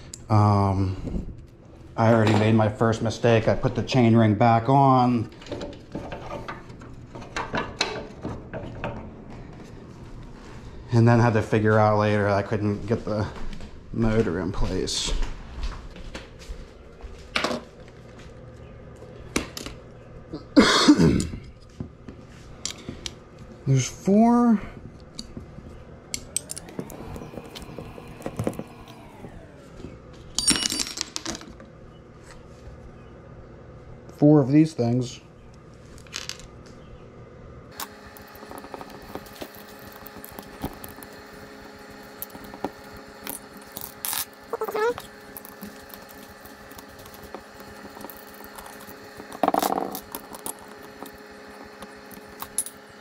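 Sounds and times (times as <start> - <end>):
motor rattling clatter: 25.3 - 30.4, 37.7 - 53.0
metal parts clicking and clinking: 26.1 - 27.6, 30.4 - 31.5, 42.0 - 52.9.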